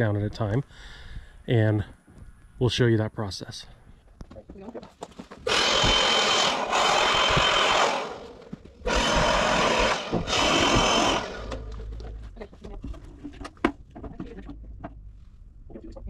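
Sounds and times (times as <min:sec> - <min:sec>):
power tool motor whine: 0:05.4 - 0:11.9.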